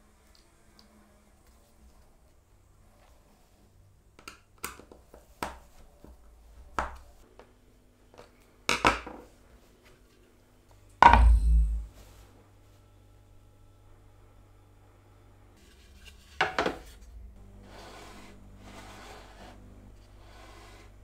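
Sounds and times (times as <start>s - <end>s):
hard objects knocking: 11.0s - 11.9s
heavy thud: 11.0s - 12.0s.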